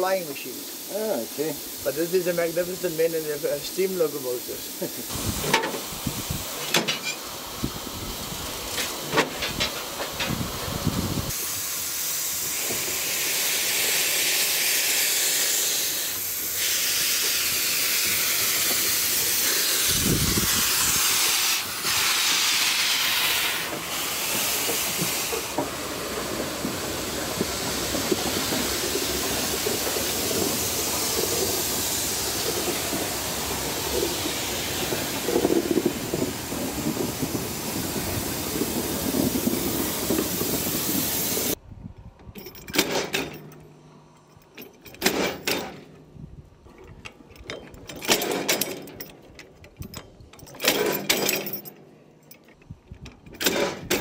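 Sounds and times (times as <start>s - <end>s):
steam hissing: 0.0s - 41.6s
sharp clicks and knocks: 42.2s - 43.7s, 46.7s - 54.0s.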